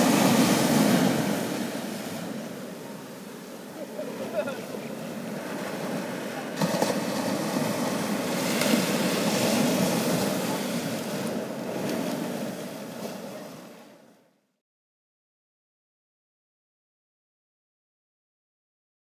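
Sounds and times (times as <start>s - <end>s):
ocean surf breaking: 0.0s - 14.2s.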